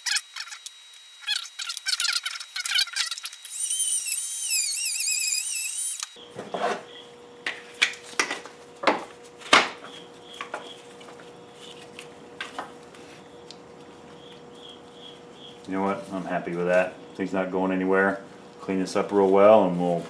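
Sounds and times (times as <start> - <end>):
rotary tool whining: 0.0 - 7.1.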